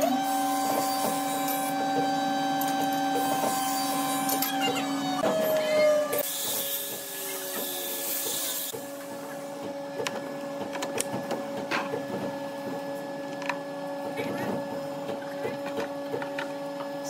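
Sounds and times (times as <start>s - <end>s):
workshop machinery humming: 0.0s - 17.0s.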